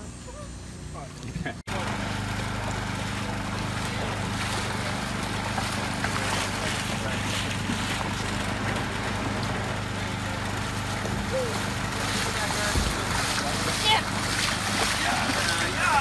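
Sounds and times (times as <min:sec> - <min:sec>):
engine idling: 0:00.0 - 0:16.0
wind and water rushing: 0:03.5 - 0:16.0.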